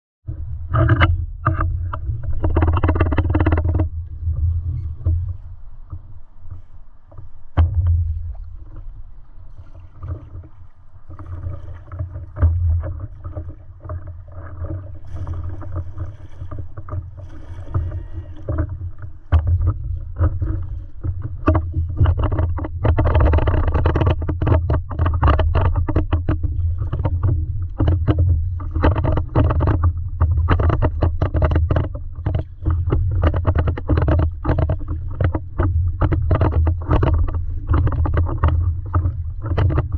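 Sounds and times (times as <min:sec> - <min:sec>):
low rumble: 0:00.3 - 0:24.2
paddle pulling through water: 0:00.3 - 0:39.9
water splashing against board: 0:00.6 - 0:39.9.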